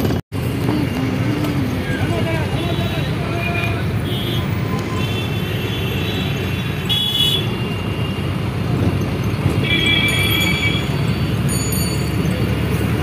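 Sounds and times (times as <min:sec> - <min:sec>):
traffic engine rumble: 0:00.0 - 0:13.0
vehicle horns honking: 0:02.4 - 0:08.2, 0:09.6 - 0:11.1.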